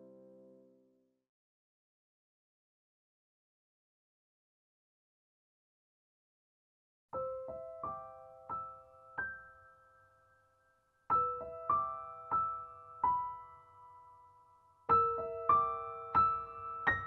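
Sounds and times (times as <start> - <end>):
slow piano melody: 0.0 - 1.0, 7.2 - 17.0.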